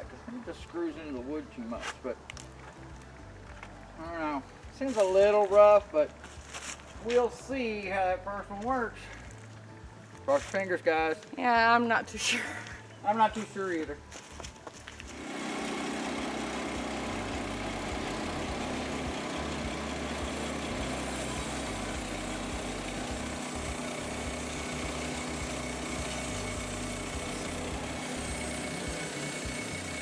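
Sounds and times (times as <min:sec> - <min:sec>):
band saw blade cutting log: 0:15.1 - 0:30.0
sawmill gas engine running: 0:15.1 - 0:30.0.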